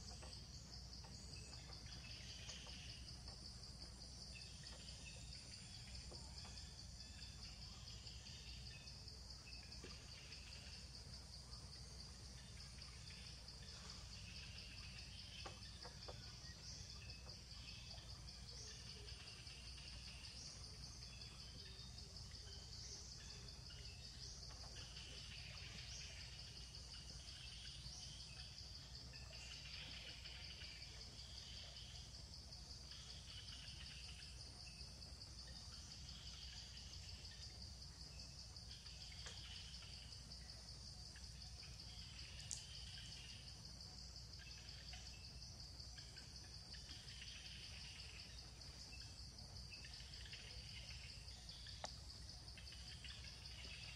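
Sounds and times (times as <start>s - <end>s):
short insect chirps: 35.4s - 53.9s.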